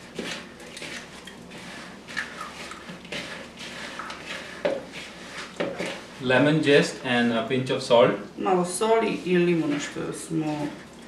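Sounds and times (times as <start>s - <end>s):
hands squishing dough: 0.0s - 6.2s.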